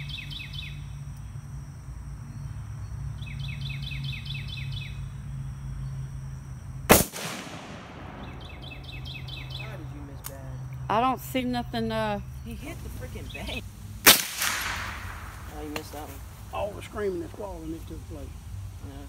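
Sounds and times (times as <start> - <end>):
bird chirping: 0.0 - 1.4, 2.2 - 6.3, 7.6 - 13.7
rifle shot: 6.9 - 8.9, 14.0 - 15.5.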